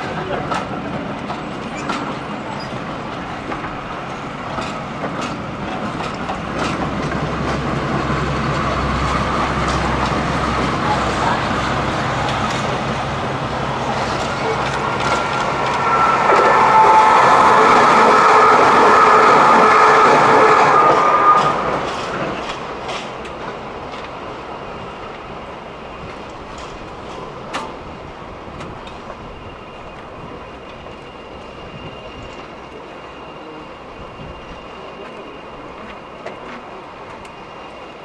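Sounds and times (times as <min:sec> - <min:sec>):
train wheel clicks over rail joints: 0:00.0 - 0:07.7, 0:21.4 - 0:24.2, 0:26.0 - 0:27.8
diesel locomotive engine rumble: 0:00.0 - 0:38.0
passing train whine: 0:00.0 - 0:38.0.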